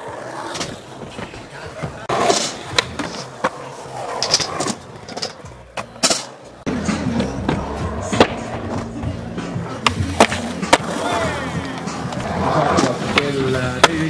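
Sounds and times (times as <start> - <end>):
skateboard clacking on ground: 0.0 - 6.5, 9.8 - 14.0
skateboard wheels rolling on concrete: 0.0 - 14.0.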